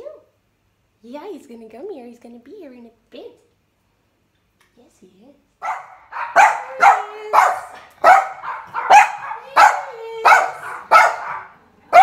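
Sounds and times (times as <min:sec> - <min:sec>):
small dog barking: 0:05.6 - 0:12.0.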